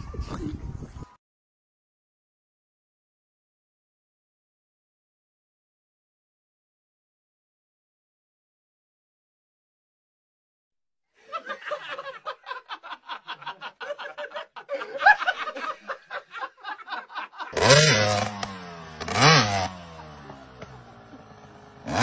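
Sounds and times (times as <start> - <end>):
rapid chuckling laughter: 11.2 - 17.6
dirt bike engine revving: 17.5 - 22.0.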